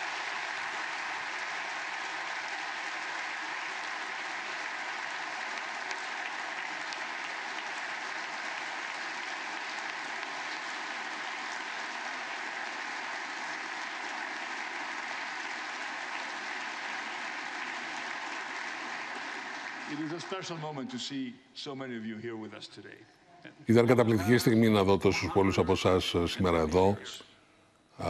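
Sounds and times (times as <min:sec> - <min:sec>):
audience applause: 0:00.0 - 0:20.6.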